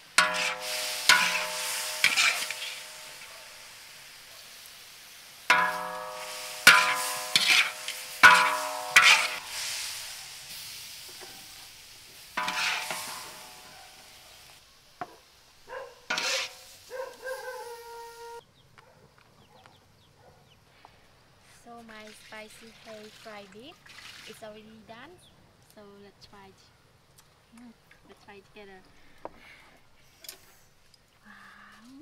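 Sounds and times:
metal spatula striking a steel wok: 0:00.0 - 0:04.1, 0:05.5 - 0:11.6, 0:12.4 - 0:14.4, 0:16.1 - 0:16.7
beef and vegetables sizzling: 0:00.0 - 0:18.4, 0:21.5 - 0:31.2.

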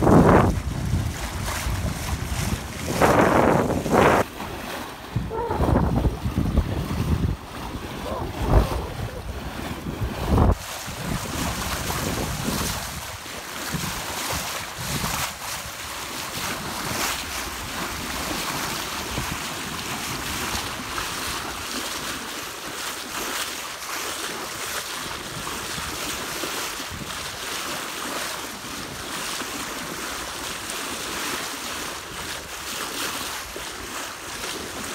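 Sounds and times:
wind buffeting microphone: 0:00.0 - 0:21.5
water rushing along hull: 0:00.0 - 0:34.9.

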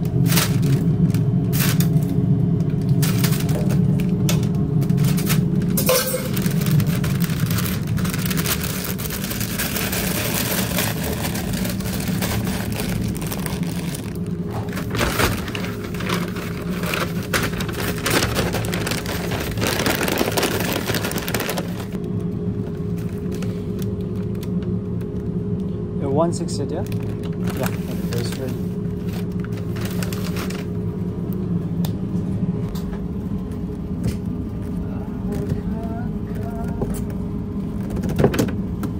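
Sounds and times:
paper bag rustling and crinkling: 0:00.0 - 0:22.0, 0:26.8 - 0:30.8
steady low kitchen hum: 0:00.0 - 0:38.9.

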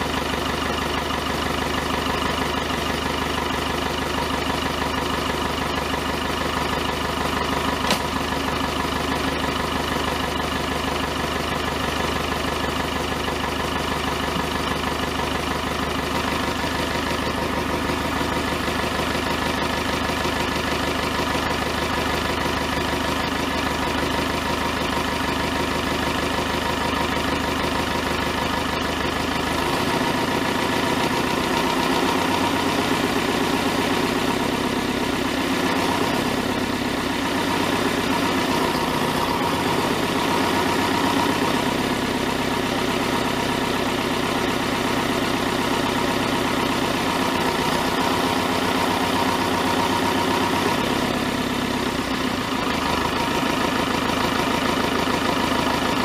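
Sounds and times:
diesel tractor engine idling: 0:00.0 - 0:56.0.

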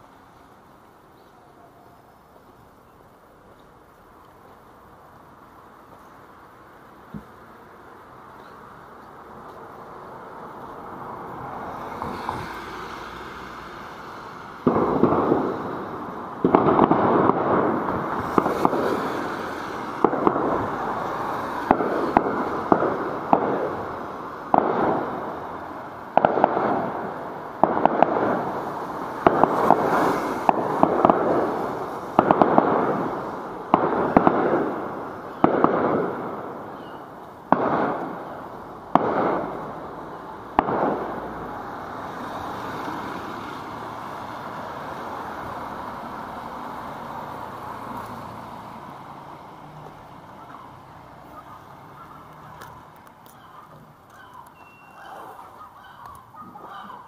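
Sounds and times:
loud echoing bangs: 0:14.6 - 0:41.6.

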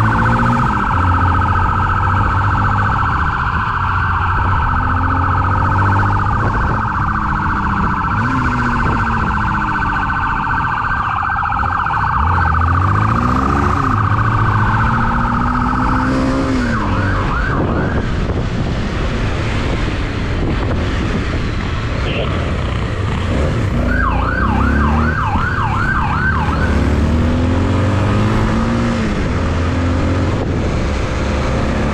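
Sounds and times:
siren warbling: 0:00.0 - 0:18.7, 0:22.0 - 0:22.5, 0:23.6 - 0:30.7
road noise: 0:00.0 - 0:31.9
motorcycle engine revving: 0:12.0 - 0:21.4, 0:22.0 - 0:31.9.

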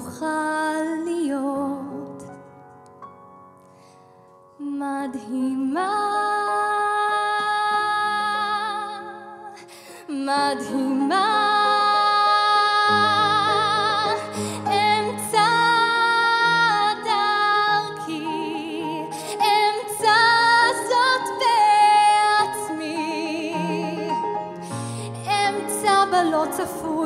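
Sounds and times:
woman singing with vibrato: 0:10.1 - 0:24.2, 0:25.1 - 0:27.0.

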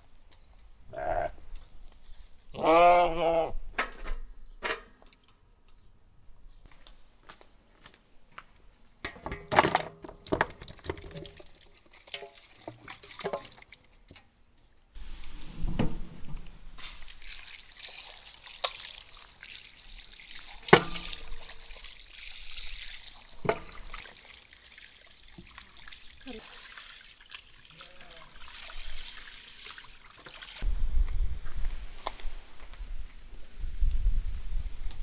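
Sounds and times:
water running: 0:16.8 - 0:30.6.

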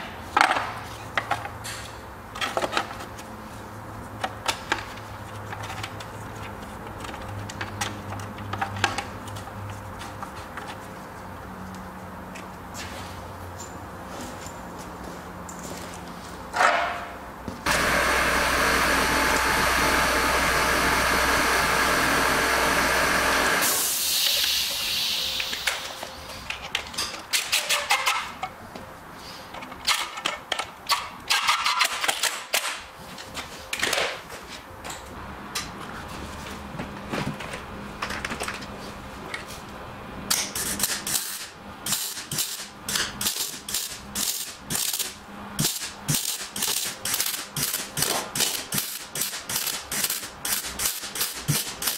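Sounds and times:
arc welding crackling: 0:17.7 - 0:25.8, 0:40.6 - 0:51.9
loud tool running noise: 0:17.7 - 0:25.8.

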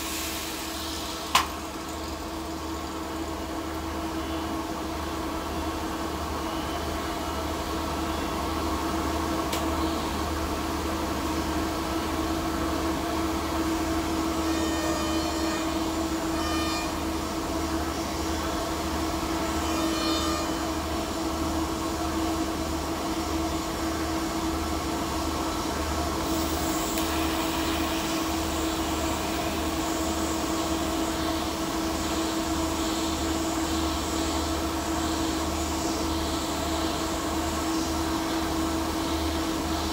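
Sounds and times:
welding arc hiss: 0:00.0 - 0:04.1, 0:24.4 - 0:39.9.

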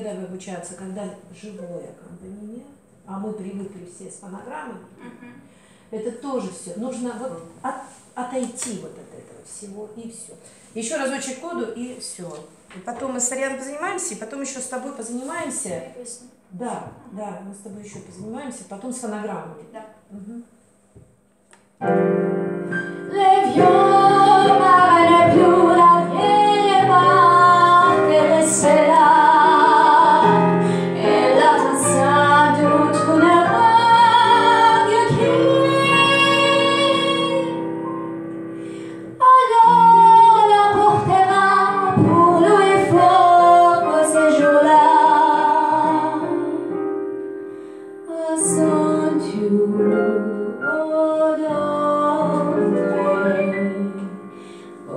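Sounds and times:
digital piano chords: 0:21.7 - 0:54.9
woman singing into microphone: 0:23.1 - 0:37.6, 0:39.2 - 0:46.6, 0:48.1 - 0:54.2.

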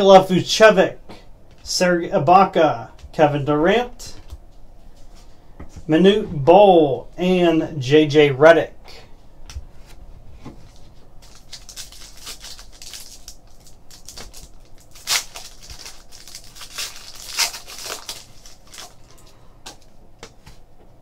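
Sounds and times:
foil ripping: 0:11.2 - 0:19.3
foil wrapper crinkling: 0:11.2 - 0:19.9.

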